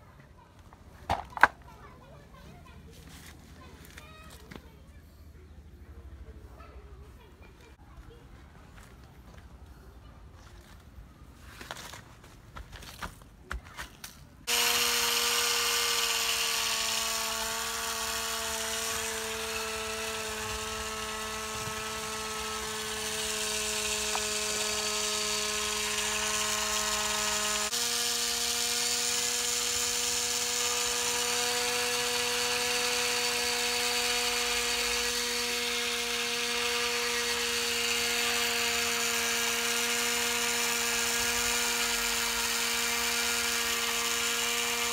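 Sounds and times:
electric winch motor whining: 0:14.5 - 0:44.9.

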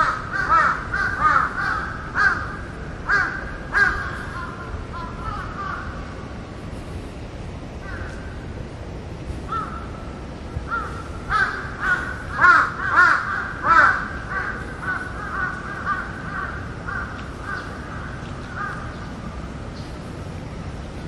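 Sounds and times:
crows cawing: 0:00.0 - 0:06.0, 0:07.8 - 0:08.3, 0:09.5 - 0:10.0, 0:10.7 - 0:19.0.

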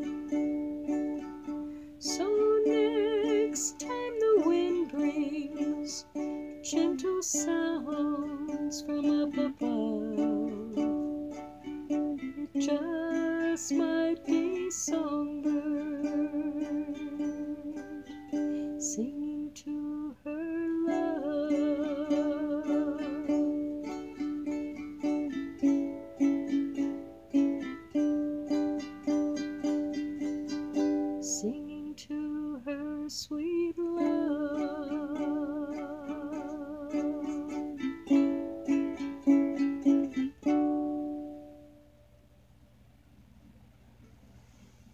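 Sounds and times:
strummed strings: 0:00.0 - 0:42.4
person singing with vibrato: 0:01.5 - 0:24.6, 0:27.9 - 0:40.6.

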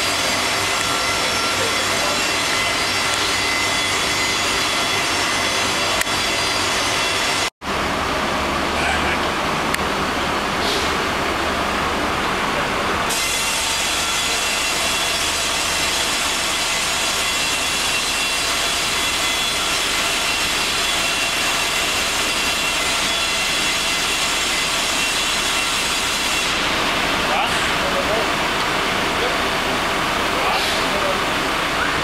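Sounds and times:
crane engine and hydraulics running: 0:00.0 - 0:32.0.

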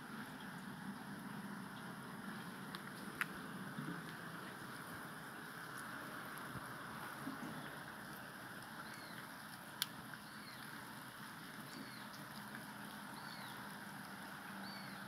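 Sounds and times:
water rushing over road: 0:00.0 - 0:15.0
bird chirping: 0:07.4 - 0:09.3, 0:10.1 - 0:10.8, 0:11.6 - 0:12.2, 0:12.8 - 0:13.7, 0:14.5 - 0:15.0.

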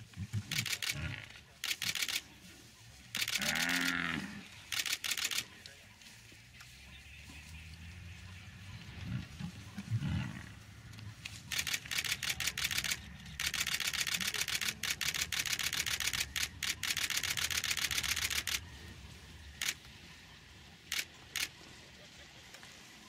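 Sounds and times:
camera shutter bursts: 0:00.4 - 0:02.2, 0:03.1 - 0:03.9, 0:04.7 - 0:05.5, 0:11.5 - 0:18.7, 0:19.6 - 0:19.9, 0:20.9 - 0:21.7
low animal call: 0:08.2 - 0:11.1.

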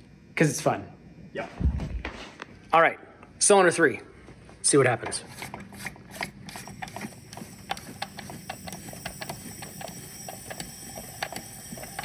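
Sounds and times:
ratchet wrench clicking: 0:05.4 - 0:12.0.

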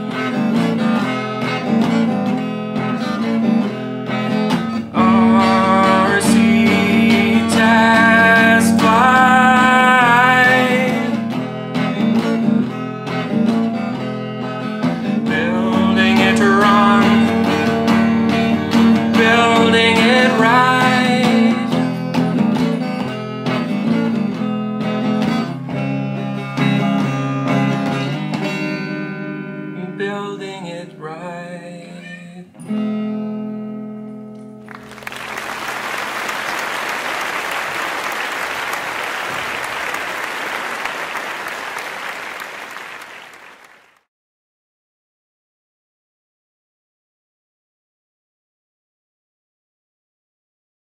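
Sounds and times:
electric guitar: 0:00.0 - 0:42.1
man singing: 0:04.9 - 0:11.2, 0:15.2 - 0:18.0, 0:19.0 - 0:22.3, 0:29.7 - 0:32.6
audience applause: 0:34.7 - 0:44.0.

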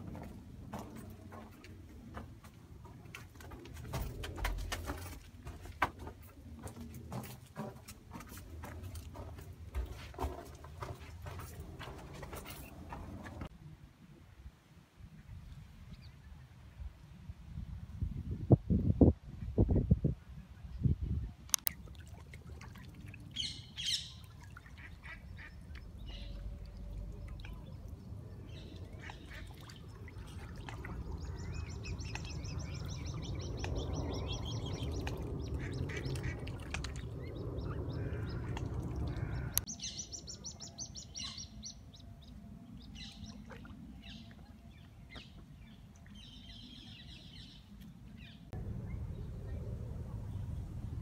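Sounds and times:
birds chirping: 0:23.3 - 0:50.8
low rumble: 0:25.6 - 0:39.7, 0:48.2 - 0:51.0.

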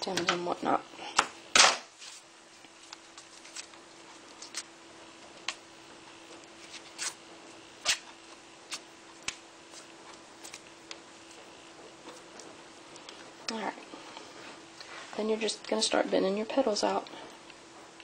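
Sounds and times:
faint steady hum: 0:00.0 - 0:18.0
tape crackling as it is wound: 0:07.8 - 0:11.0.

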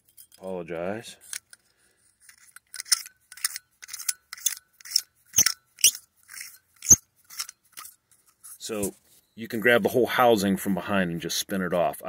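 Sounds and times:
metal parts scraping and clicking: 0:00.0 - 0:00.5, 0:01.2 - 0:08.8.

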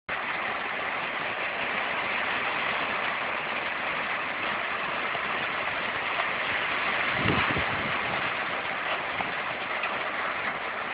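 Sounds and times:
steady rain hiss: 0:00.1 - 0:10.9.

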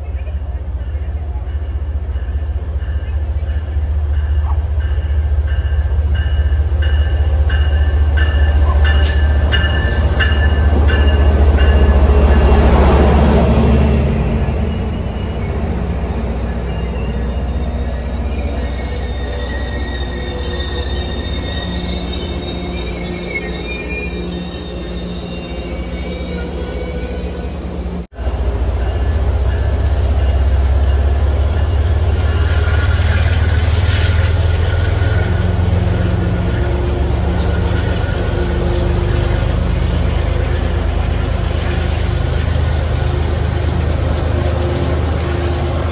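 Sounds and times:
train engine rumble: 0:00.0 - 0:45.9
high wheel and brake squeals: 0:14.4 - 0:28.0.

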